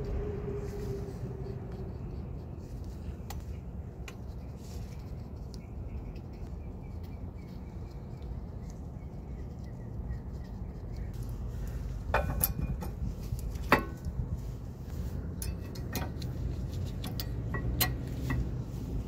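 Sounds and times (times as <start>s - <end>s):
steady low hum: 0.0s - 19.0s
metallic clicks of brake pads: 12.0s - 14.2s, 15.3s - 18.8s.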